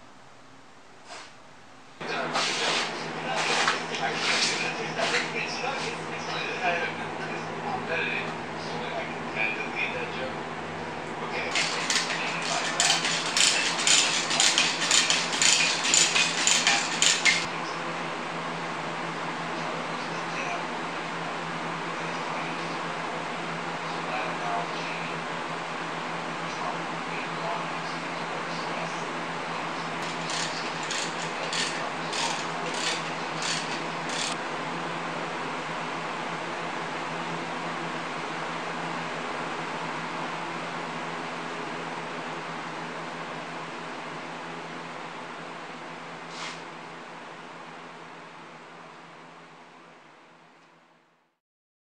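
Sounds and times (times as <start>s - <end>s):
metal chain clinking through hoist: 11.5s - 17.5s, 30.0s - 34.4s.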